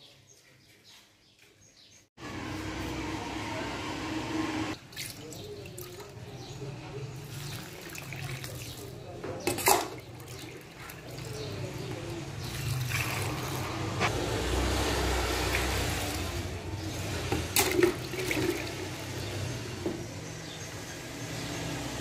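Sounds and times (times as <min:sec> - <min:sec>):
water pouring into metal tray: 0:07.2 - 0:13.8, 0:15.3 - 0:19.2.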